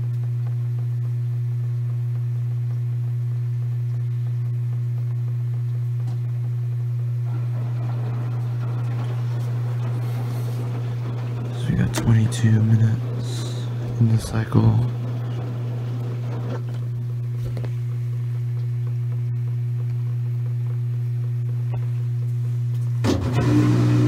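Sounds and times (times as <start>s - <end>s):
washing machine humming: 0.0s - 24.0s
rustling mechanical noise: 3.6s - 19.3s.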